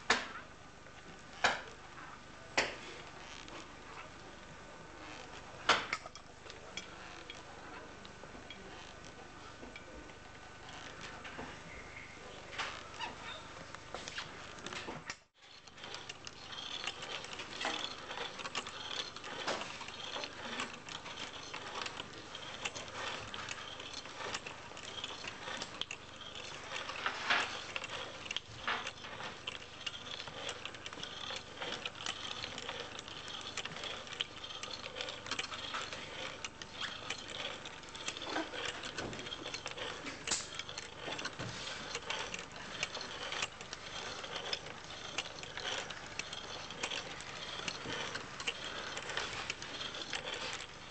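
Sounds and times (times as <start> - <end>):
kinetic object clicking and rattling: 14.4 - 50.9.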